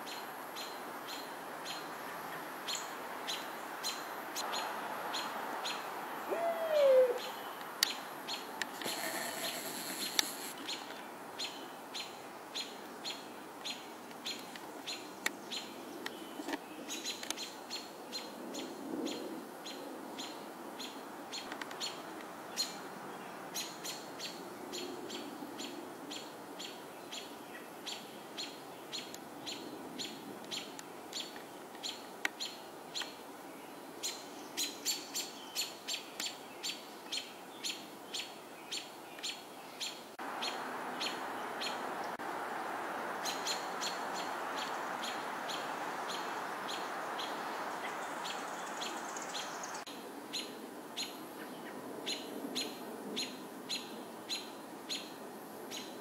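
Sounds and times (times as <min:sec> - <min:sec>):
songbird chirping: 0:00.0 - 0:56.0
steady rushing noise: 0:08.6 - 0:10.6.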